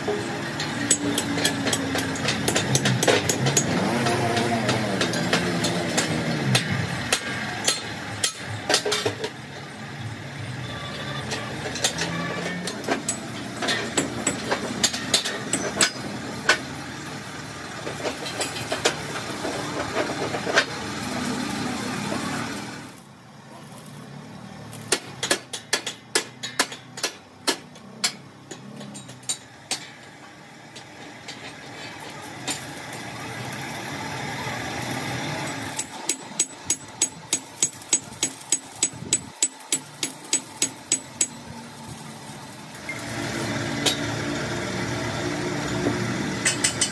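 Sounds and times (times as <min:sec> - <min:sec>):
hammer striking steel plate: 0:00.1 - 0:09.2, 0:24.8 - 0:30.1, 0:35.8 - 0:41.4, 0:46.4 - 0:46.9.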